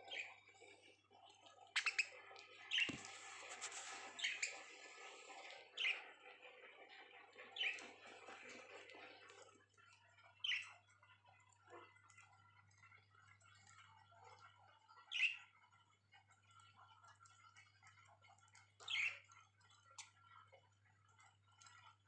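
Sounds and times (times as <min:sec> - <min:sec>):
budgerigars chirping: 0:01.8 - 0:02.1.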